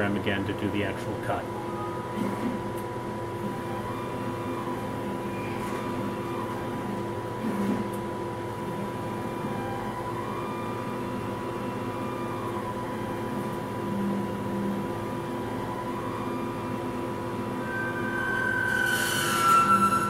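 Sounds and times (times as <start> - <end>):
stepper motors whining: 8.6 - 20.0.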